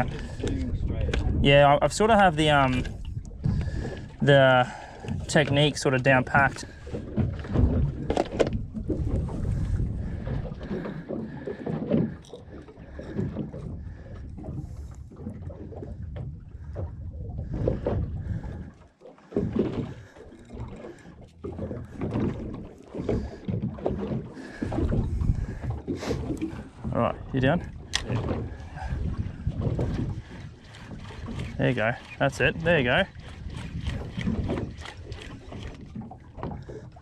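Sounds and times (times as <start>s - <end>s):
water slapping against boat hull: 0.0s - 37.0s
wind buffeting microphone: 0.0s - 37.0s.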